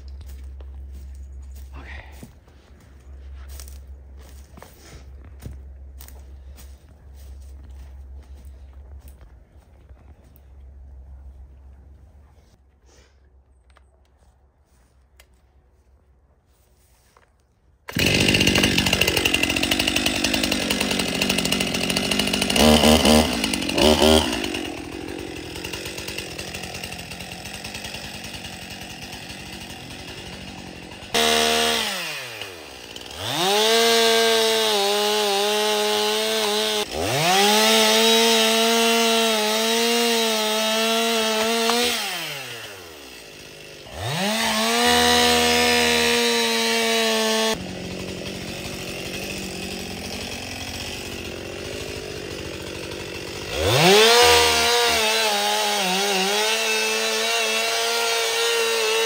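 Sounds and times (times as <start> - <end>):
chainsaw cutting wood: 17.9 - 59.0.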